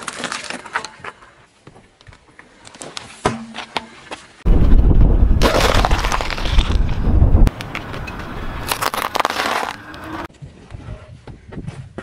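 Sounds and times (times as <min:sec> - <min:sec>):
grit crackling under tyre: 0:04.5 - 0:10.3.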